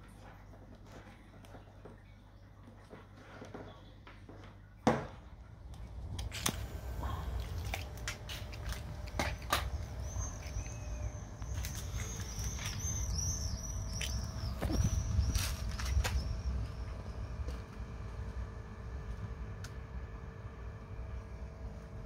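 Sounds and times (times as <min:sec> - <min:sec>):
low steady rumble: 0:03.8 - 0:22.0
small birds chirping: 0:07.0 - 0:17.0.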